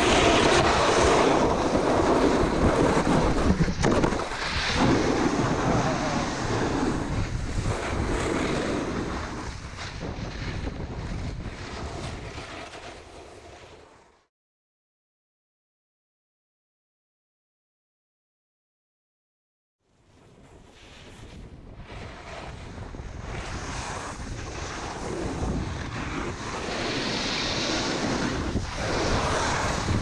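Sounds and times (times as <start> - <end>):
wind rushing over microphone: 0.0 - 13.5, 20.2 - 30.0.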